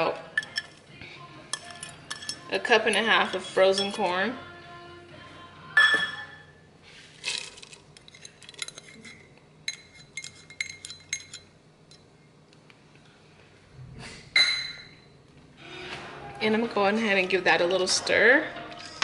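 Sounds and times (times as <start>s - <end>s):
metal cup clinking on pot rim: 0.4s - 0.8s, 1.5s - 3.1s, 5.8s - 6.4s.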